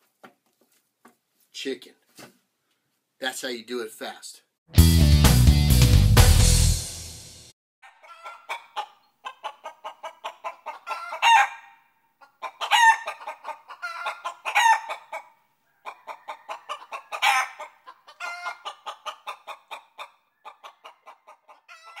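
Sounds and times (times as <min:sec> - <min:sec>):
chicken squawks: 0:07.8 - 0:22.0
chickens clucking: 0:07.8 - 0:22.0.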